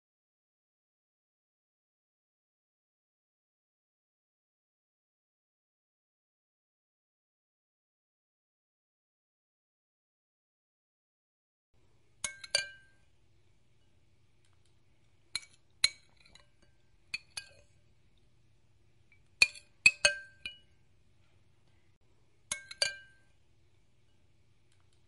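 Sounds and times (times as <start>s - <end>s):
spoon clinking against glass bowl: 12.2s - 13.1s, 15.3s - 17.8s, 19.1s - 20.8s, 22.5s - 23.4s.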